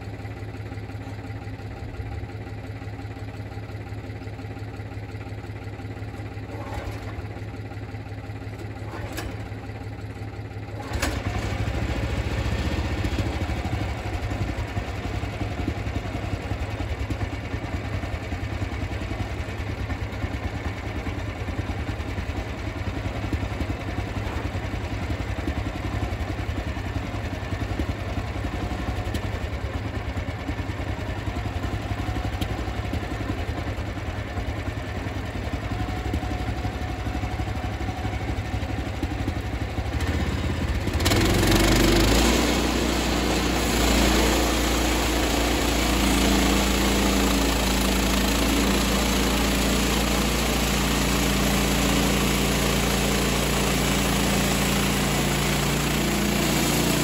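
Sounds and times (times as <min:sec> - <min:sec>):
sawmill engine idling: 0:00.0 - 0:57.0.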